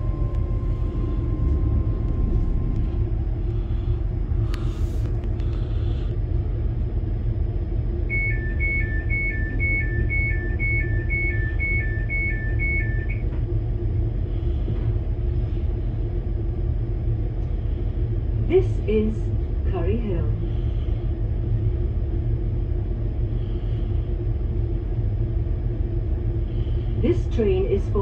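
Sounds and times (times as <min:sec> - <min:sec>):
train low hum: 0:00.0 - 0:28.0
two-tone door warning beeps: 0:08.1 - 0:13.3.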